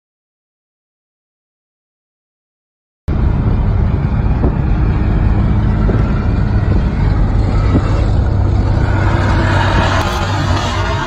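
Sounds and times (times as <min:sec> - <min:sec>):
car road and engine noise: 0:03.1 - 0:11.0.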